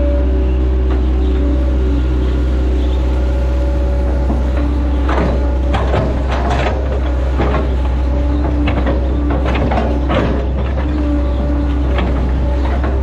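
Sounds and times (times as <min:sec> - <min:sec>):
excavator diesel engine running: 0:00.0 - 0:13.0
excavator bucket clanking: 0:00.8 - 0:13.0.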